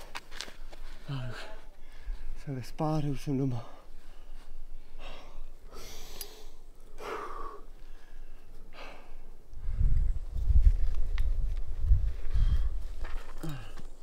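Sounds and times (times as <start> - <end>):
person breathing hard: 0.9 - 2.4, 3.5 - 10.1, 12.2 - 14.0.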